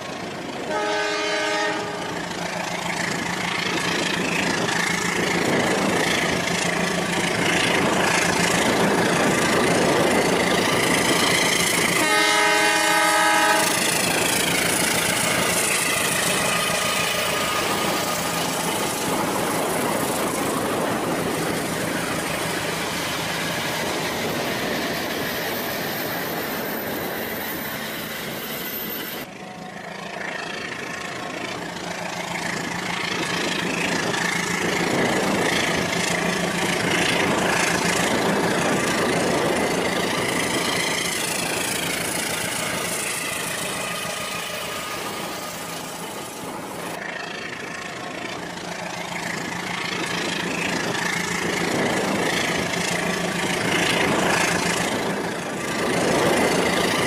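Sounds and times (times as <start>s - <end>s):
toy train horn: 0.7s - 2.1s, 12.0s - 13.9s.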